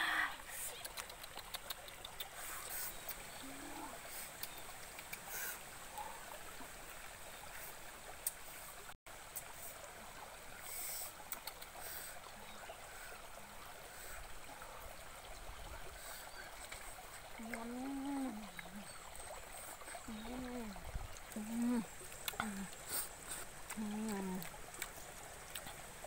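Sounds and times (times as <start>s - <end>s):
stream running over rocks: 0.0s - 26.0s
woman humming: 3.4s - 4.0s, 17.4s - 18.9s, 20.1s - 23.0s, 23.7s - 24.5s.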